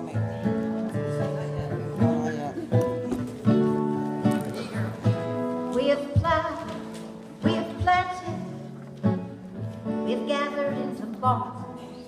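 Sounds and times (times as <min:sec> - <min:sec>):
strummed acoustic guitar: 0:00.0 - 0:12.0
woman singing folk song: 0:05.5 - 0:09.2, 0:09.8 - 0:12.0.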